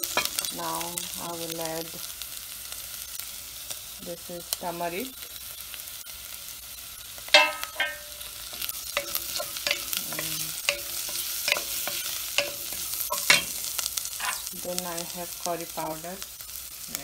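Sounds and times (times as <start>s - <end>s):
onions sizzling in oil: 0.0s - 17.0s
spatula scraping a pot: 7.4s - 14.5s.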